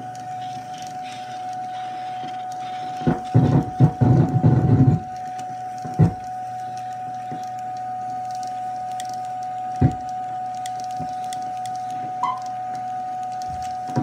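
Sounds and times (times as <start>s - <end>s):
steady high tone: 11.3s - 14.0s.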